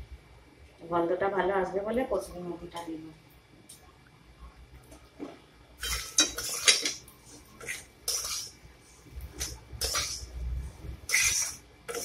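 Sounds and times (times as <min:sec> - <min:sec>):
metal spatula scraping pan: 0:05.8 - 0:12.0.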